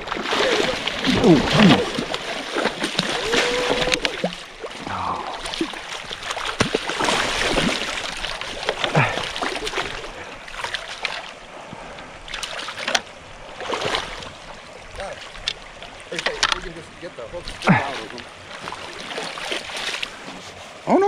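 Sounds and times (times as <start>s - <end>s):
fish splashing in water: 0.0s - 11.4s, 12.2s - 16.5s
stream rushing: 0.0s - 21.0s.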